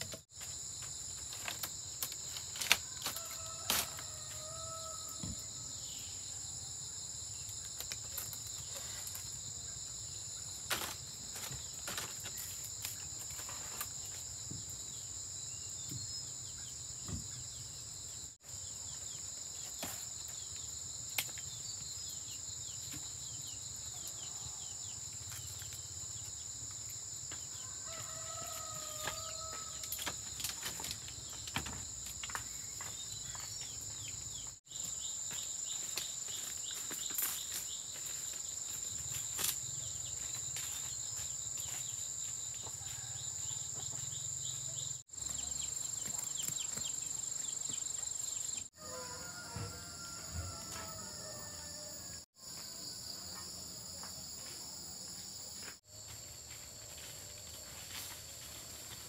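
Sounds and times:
high-pitched insect chorus: 0:00.0 - 0:59.0.

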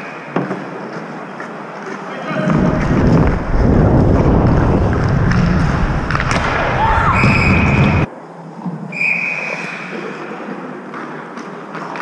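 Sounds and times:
wind rumble on microphone: 0:02.4 - 0:08.1.

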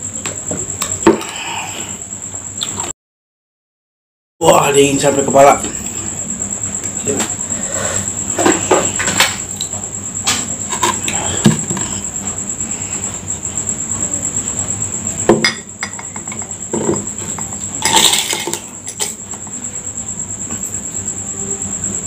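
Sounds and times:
high-pitched whine: 0:04.4 - 0:22.0
spoon rattling ice in glass: 0:17.8 - 0:19.2.

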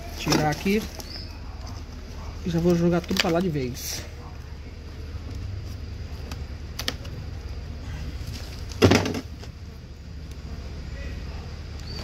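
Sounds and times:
wooden box knock and scrape: 0:08.7 - 0:09.5.

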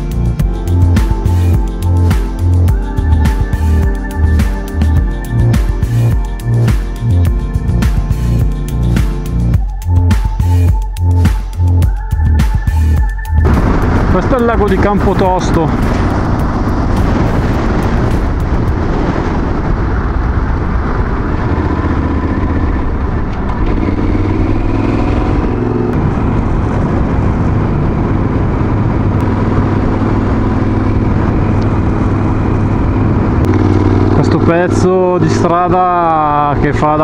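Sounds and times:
motorcycle engine running: 0:11.8 - 0:37.0
wind noise on microphone: 0:13.4 - 0:34.2.

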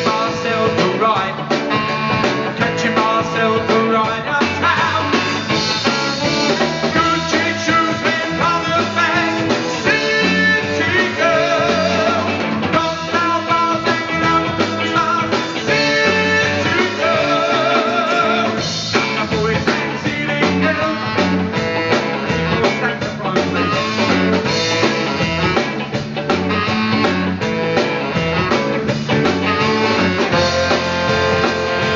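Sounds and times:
man singing lead vocal: 0:00.0 - 0:25.2
bass guitar: 0:00.0 - 0:31.9
drums: 0:00.0 - 0:31.9
electric guitars: 0:00.0 - 0:31.9
saxophone: 0:00.0 - 0:31.9.

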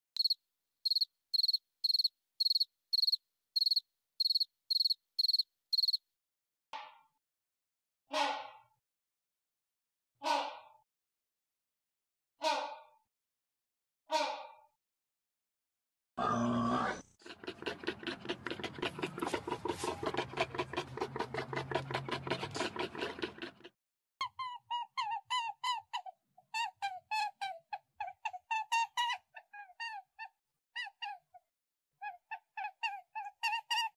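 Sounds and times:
cricket chirping: 0:00.2 - 0:06.0
warthog grunting: 0:16.2 - 0:23.7.

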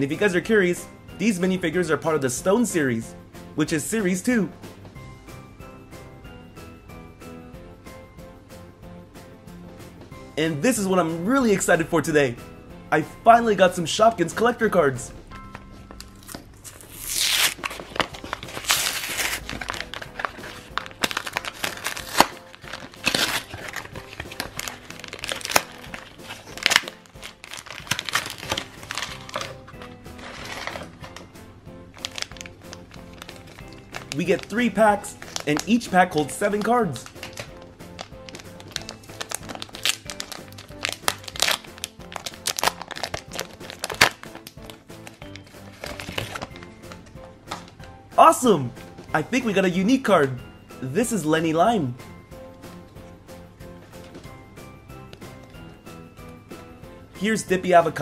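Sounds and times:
background music: 0:00.0 - 0:58.0
cardboard box tearing: 0:16.2 - 0:26.9, 0:27.5 - 0:29.6, 0:30.2 - 0:30.9, 0:45.8 - 0:46.5
foil packs crackling and rustling: 0:16.2 - 0:31.3, 0:32.0 - 0:47.0.

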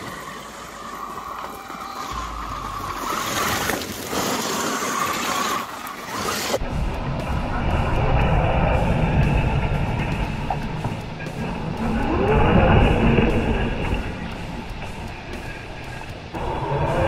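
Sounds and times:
tyres crunching gravel: 0:00.0 - 0:06.7.

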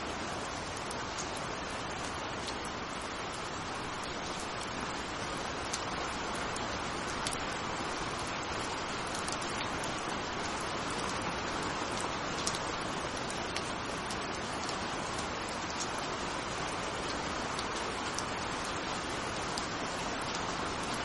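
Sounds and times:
steady rain hiss: 0:00.0 - 0:21.0
raindrops ticking: 0:00.1 - 0:21.0.

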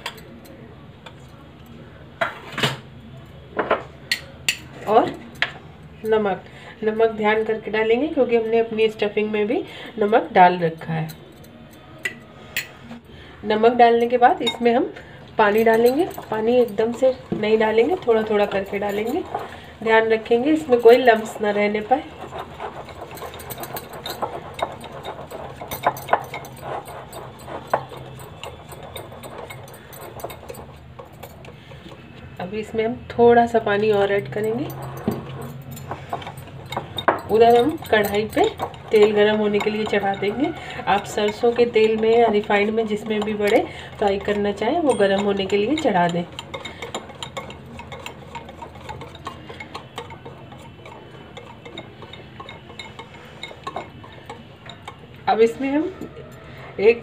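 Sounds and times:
batter mixed by hand: 0:14.0 - 0:32.4, 0:33.5 - 0:55.5.

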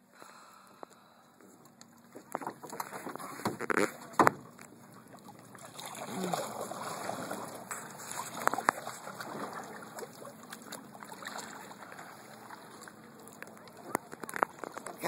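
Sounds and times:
paddle splashing water: 0:02.0 - 0:15.0
wood knocking on boat: 0:02.2 - 0:04.6.

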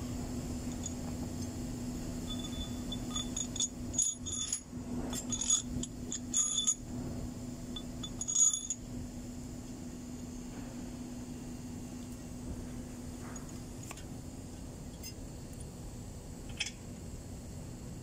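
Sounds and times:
low hum: 0:00.0 - 0:18.0
metal tools clinking: 0:02.3 - 0:06.8, 0:07.8 - 0:08.8.

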